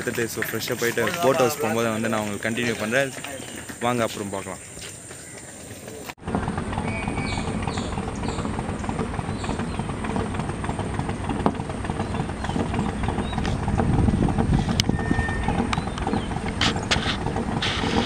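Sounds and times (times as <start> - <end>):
low rough rumble: 6.2 - 18.0.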